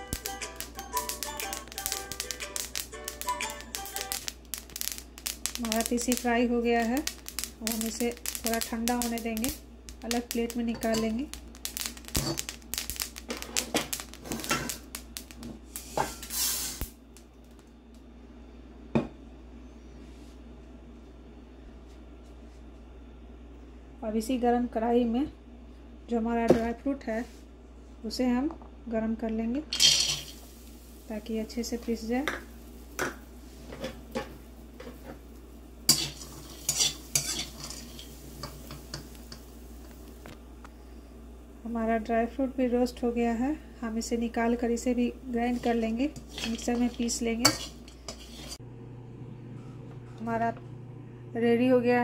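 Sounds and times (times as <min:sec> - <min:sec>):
seeds crackling in a hot pan: 0:00.0 - 0:18.0, 0:29.6 - 0:48.6
metal spatula scraping pan: 0:29.8 - 0:30.4, 0:35.9 - 0:39.0, 0:45.5 - 0:48.6.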